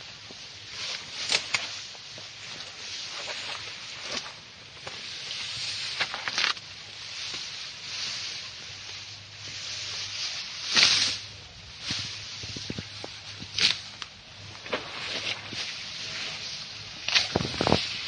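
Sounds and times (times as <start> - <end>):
elephant tearing grass: 0.6 - 18.0.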